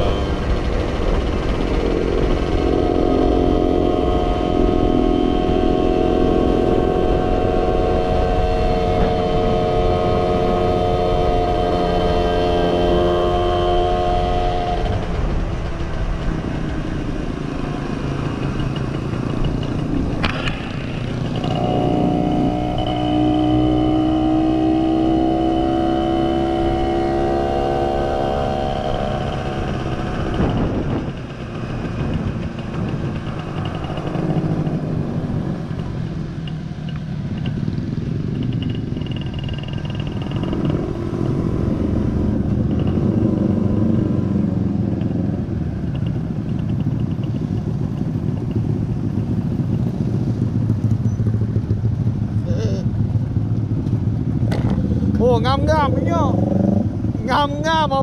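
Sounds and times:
motorcycle engine running: 0:00.0 - 0:58.0
road and wind noise: 0:00.0 - 0:58.0.

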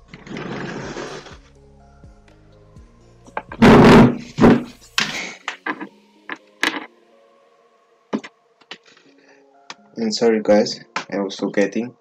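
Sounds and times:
faint background music: 0:00.0 - 0:12.0
scraping noise: 0:00.1 - 0:01.4
knocks and bangs: 0:03.4 - 0:04.7.

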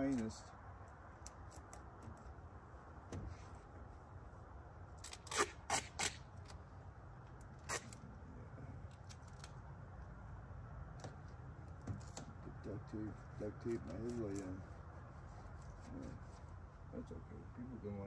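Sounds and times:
low steady rumble: 0:00.0 - 0:18.0
duct tape ripping off roll: 0:05.0 - 0:06.6, 0:07.4 - 0:08.0.

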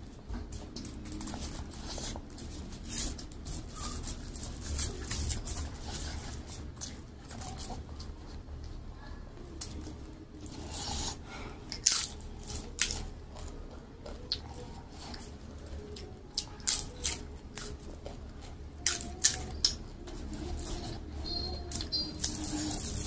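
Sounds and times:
crunching crisp papad: 0:00.0 - 0:23.0
soft chewing: 0:00.0 - 0:23.0.

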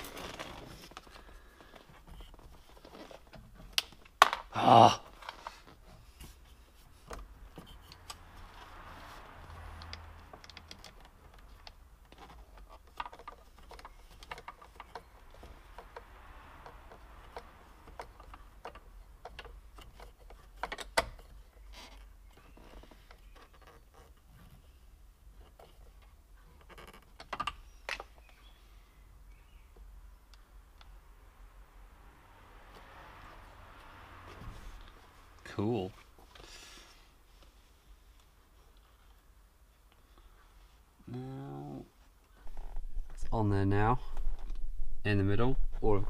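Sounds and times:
plastic parts clicking and rattling: 0:09.8 - 0:24.3.

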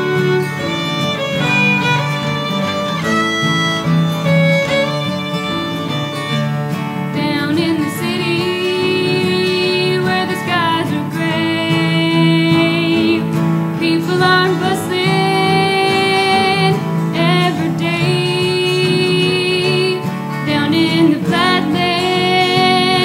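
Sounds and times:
bluegrass fiddle: 0:00.0 - 0:23.0
woman singing: 0:07.0 - 0:23.0.

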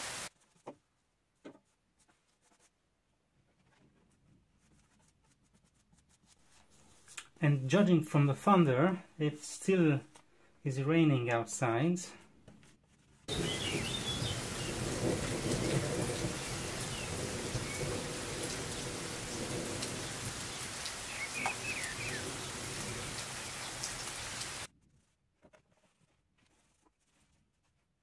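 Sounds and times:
steady rain falling: 0:00.0 - 0:00.3, 0:13.3 - 0:24.7
thunder rumble: 0:13.3 - 0:23.9.

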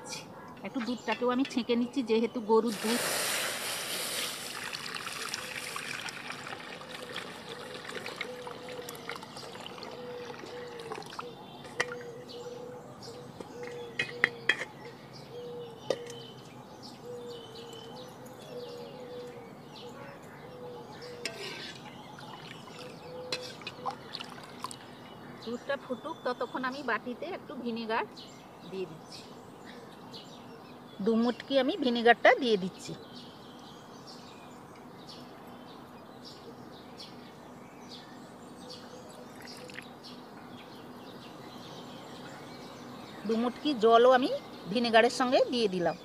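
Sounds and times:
milk pouring through a sieve: 0:02.7 - 0:11.2.

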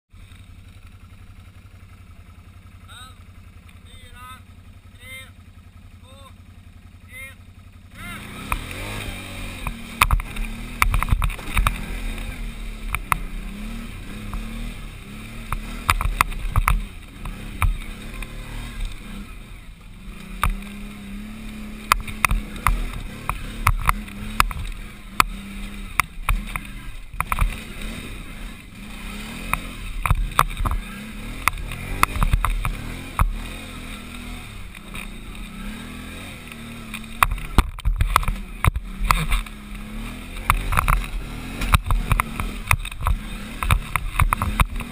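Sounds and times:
atv engine revving under load: 0:00.1 - 0:44.9
knocks and clatter over rocks: 0:08.4 - 0:19.2, 0:20.1 - 0:35.6, 0:36.5 - 0:44.9.

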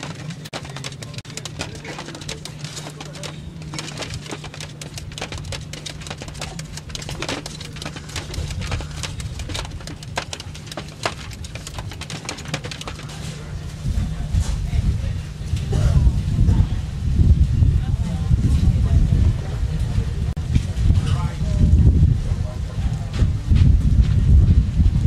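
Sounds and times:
caged birds chirping: 0:00.0 - 0:13.2
steady low hum: 0:00.0 - 0:25.0.

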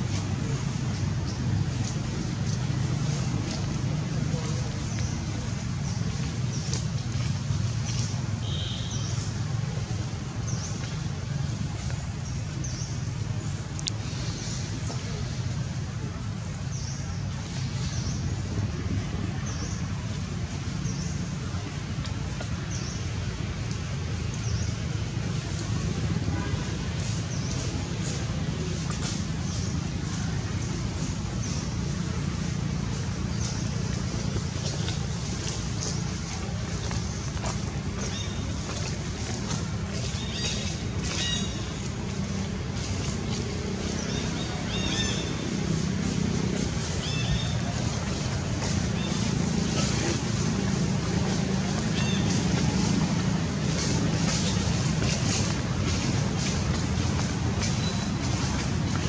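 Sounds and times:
steady low rumble: 0:00.0 - 0:08.6, 0:09.2 - 0:59.0.

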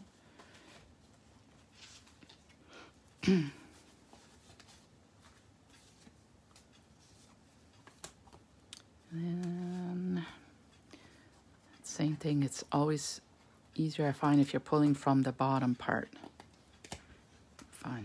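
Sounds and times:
person speaking: 0:09.0 - 0:10.5, 0:11.8 - 0:16.2, 0:17.7 - 0:18.0.

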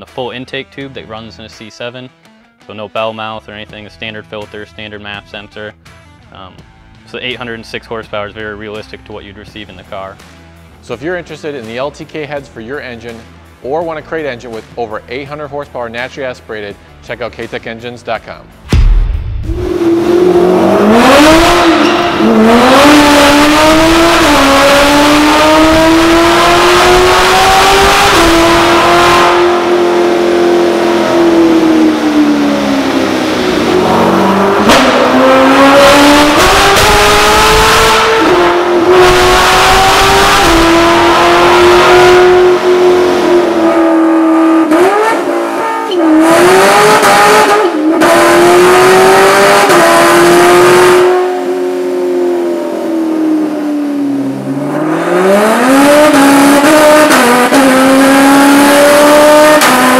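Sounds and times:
car engine revving hard: 0:19.4 - 0:59.9.

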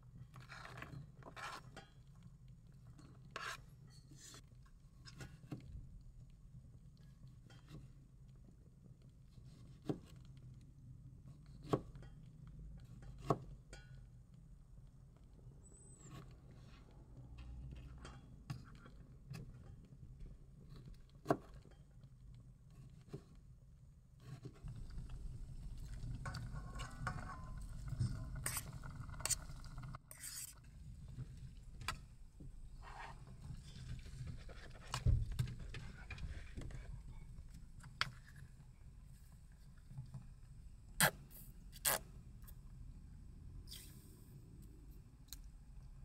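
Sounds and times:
metal spoon scraping steel bowl: 0:25.7 - 0:30.7.

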